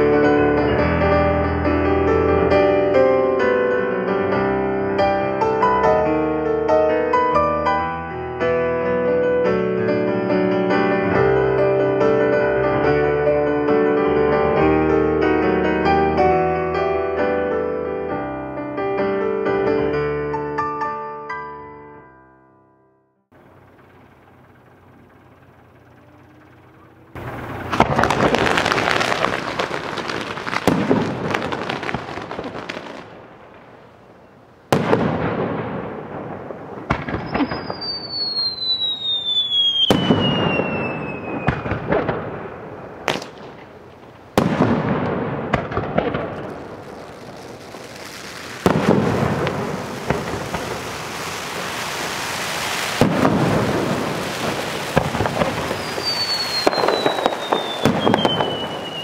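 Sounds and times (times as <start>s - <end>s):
fireworks bangs: 23.4s - 59.0s
falling firework whistle: 24.8s - 33.1s, 36.8s - 42.2s, 46.2s - 59.0s.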